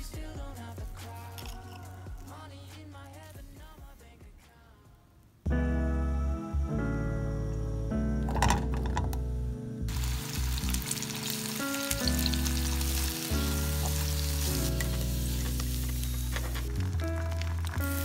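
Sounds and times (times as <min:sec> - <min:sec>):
background music low notes: 0:00.0 - 0:18.0
potatoes sizzling in oil: 0:09.9 - 0:18.0.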